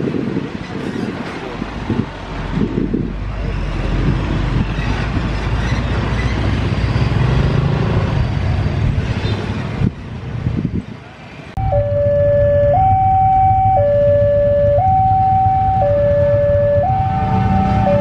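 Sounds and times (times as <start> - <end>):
pickup truck passing: 11.6 - 18.0.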